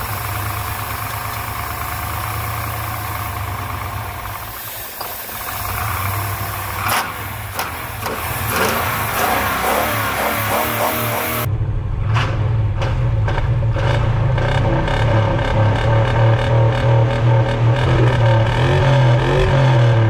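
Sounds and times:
aerosol can hissing: 0.0s - 11.5s
truck engine running: 0.0s - 20.0s.

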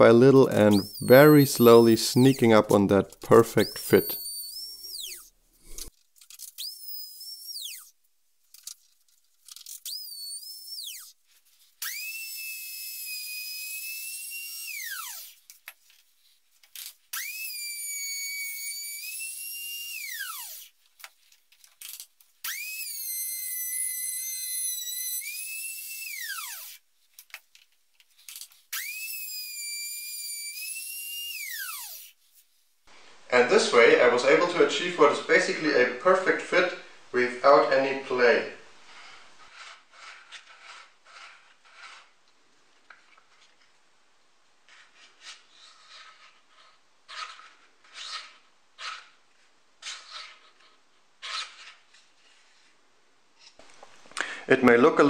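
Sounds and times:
router whining: 0.5s - 8.0s, 9.5s - 11.2s, 11.8s - 15.4s, 17.1s - 20.8s, 21.8s - 26.8s, 28.3s - 32.2s.

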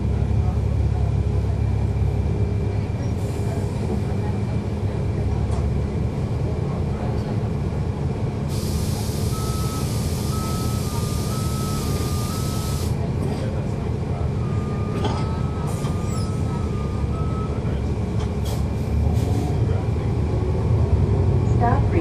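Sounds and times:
bus diesel engine humming: 0.0s - 22.0s
air release hiss: 8.5s - 12.9s.

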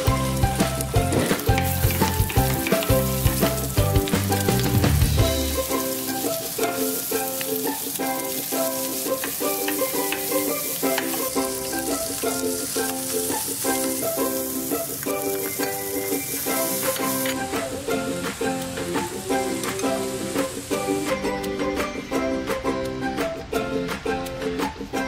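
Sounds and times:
food sizzling in a frying pan: 0.0s - 23.1s
background music with plucked strings: 0.0s - 25.0s
wooden spoon stirring: 5.5s - 14.1s.

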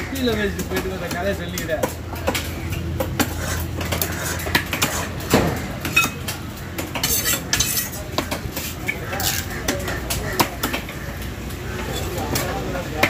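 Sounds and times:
knife scraping: 3.2s - 5.3s, 7.0s - 8.0s.

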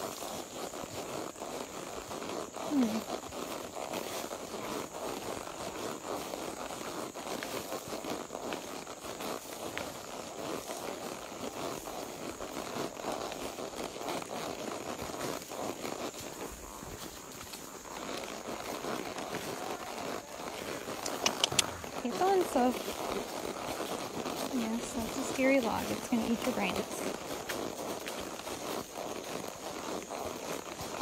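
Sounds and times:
rustling and crackling: 0.1s - 31.0s
small clicks: 21.0s - 21.8s.

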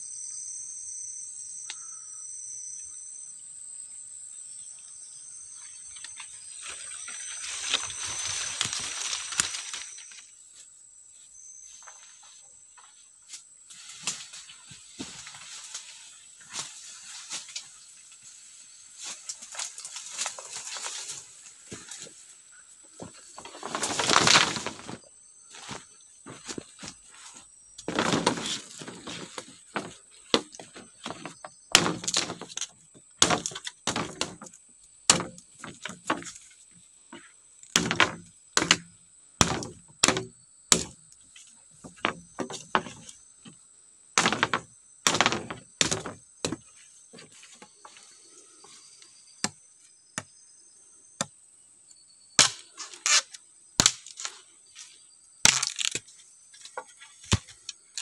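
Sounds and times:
faint high whine: 0.0s - 17.5s
machete chopping bamboo: 29.8s - 34.5s, 35.1s - 36.3s, 37.7s - 41.0s, 44.2s - 46.6s, 52.4s - 53.2s, 53.8s - 54.3s, 55.4s - 56.1s.

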